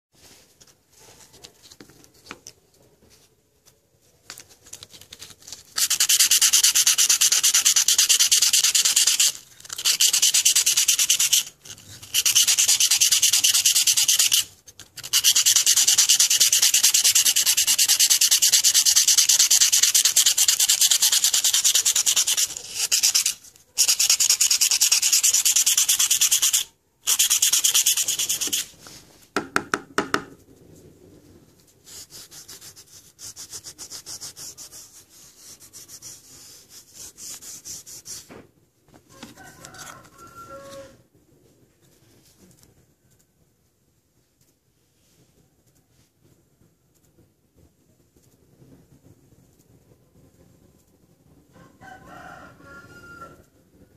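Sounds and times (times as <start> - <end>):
sanding sponge rasping on copper: 5.8 - 28.7, 31.9 - 38.3.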